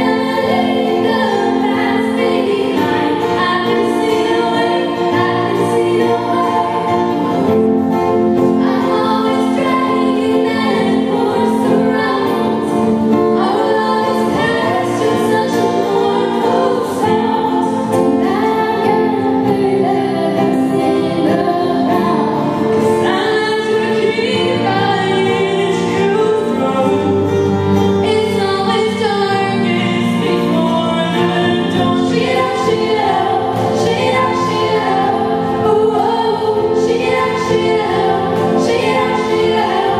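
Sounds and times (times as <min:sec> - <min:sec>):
acoustic guitar: 0:00.0 - 0:39.9
female vocal group singing: 0:00.0 - 0:39.9.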